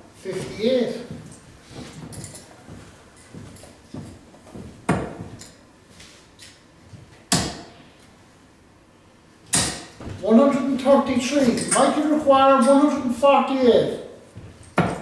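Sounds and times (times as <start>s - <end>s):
darts thudding into dartboard: 4.9s - 5.3s, 9.5s - 10.2s, 14.8s - 15.0s.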